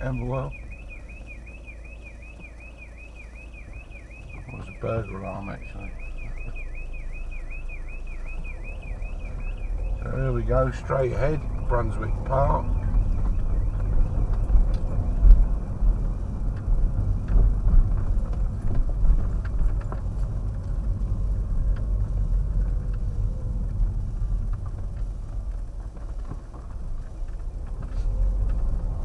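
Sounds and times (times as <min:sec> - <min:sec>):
car engine and tyre rumble: 0:00.0 - 0:29.0.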